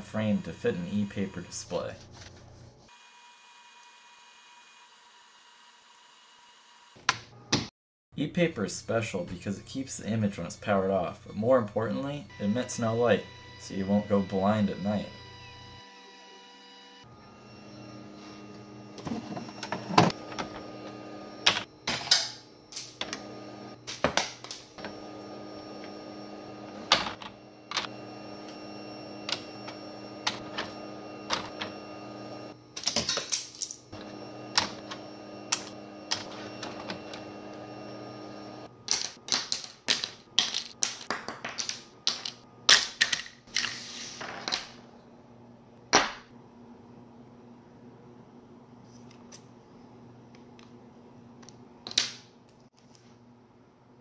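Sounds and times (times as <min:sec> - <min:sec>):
machine hum: 0:12.2 - 0:33.0, 0:33.6 - 0:39.1.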